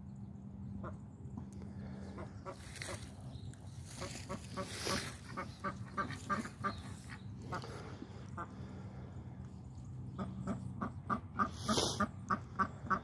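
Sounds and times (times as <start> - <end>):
ducks quacking: 1.8 - 9.1, 10.1 - 13.0.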